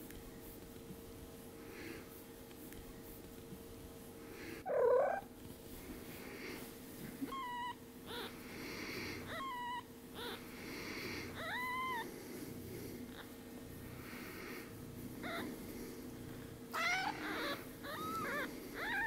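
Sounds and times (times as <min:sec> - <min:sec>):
kitten mewing: 0:04.6 - 0:05.3, 0:07.2 - 0:08.4, 0:09.1 - 0:10.4, 0:11.2 - 0:12.1, 0:15.2 - 0:15.5, 0:16.7 - 0:19.0.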